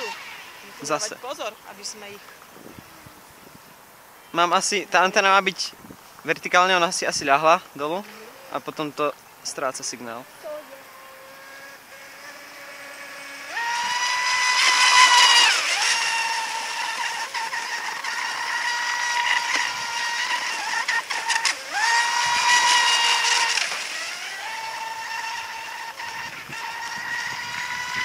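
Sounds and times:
brushless motor whining: 0.0s - 28.0s.

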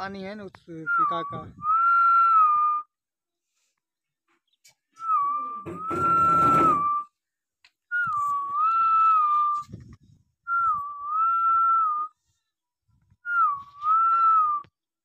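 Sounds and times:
person whistling wavering phrase: 5.0s - 7.1s.

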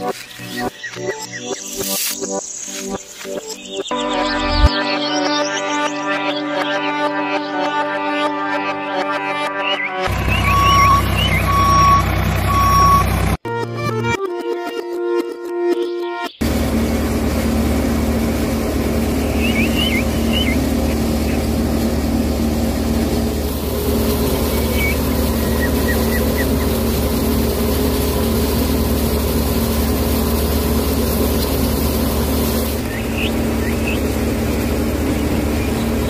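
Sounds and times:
high chirps: 0.0s - 6.0s, 9.6s - 13.0s, 19.0s - 21.6s, 24.0s - 26.9s
small motor humming and whirring: 16.4s - 36.0s.

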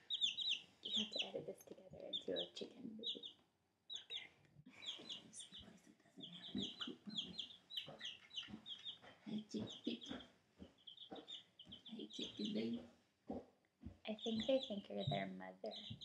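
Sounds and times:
chicks peeping: 0.0s - 3.3s, 3.9s - 12.9s, 13.8s - 16.0s.

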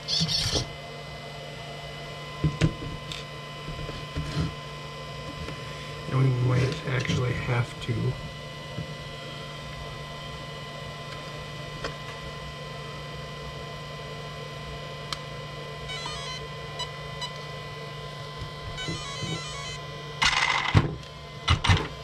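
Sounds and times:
stepped beep tones from motor: 15.8s - 17.5s, 18.6s - 19.9s
steady high tone: 15.9s - 17.4s, 18.7s - 20.0s.

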